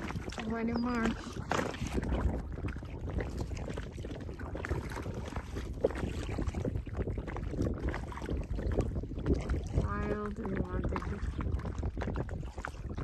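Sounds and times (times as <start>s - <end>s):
water splashing around kayak: 0.0s - 13.0s
wind buffeting microphone: 0.0s - 13.0s.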